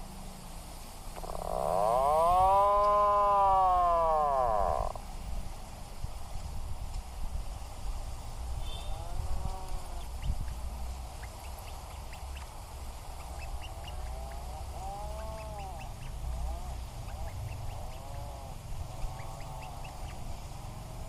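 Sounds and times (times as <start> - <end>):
puffins calling: 1.1 - 5.0, 8.7 - 21.0.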